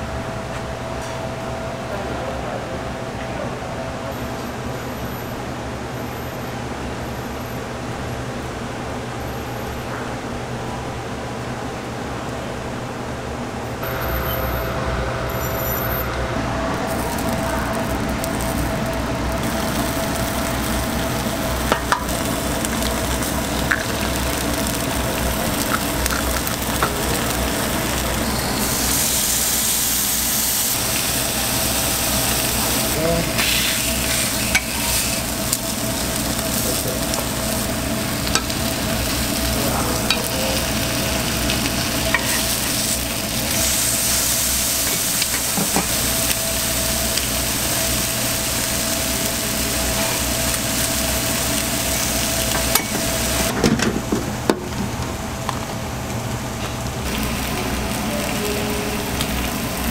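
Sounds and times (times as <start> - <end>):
steady hum: 0.0 - 59.9
egg and bacon sizzling on griddle: 16.8 - 54.8, 57.1 - 59.9.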